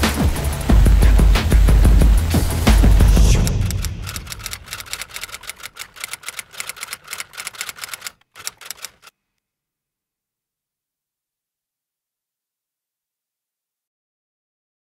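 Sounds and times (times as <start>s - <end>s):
rapid typewriter-like clicking: 0.1s - 9.1s.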